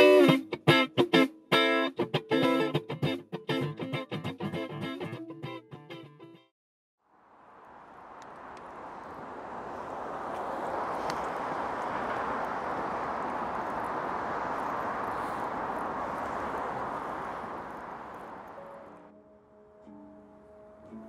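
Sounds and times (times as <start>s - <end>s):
steady rushing noise: 7.1s - 19.1s
faint clicks: 8.2s - 8.8s, 10.3s - 12.2s.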